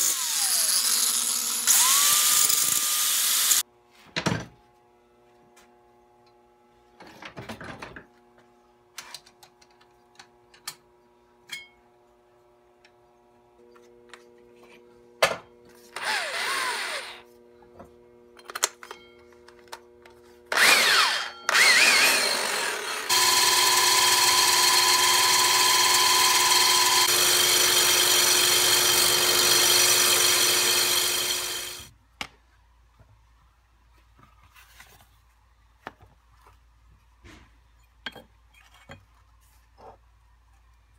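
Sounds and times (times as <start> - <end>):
angle grinder grinding metal: 0.0 - 3.6, 20.5 - 31.9.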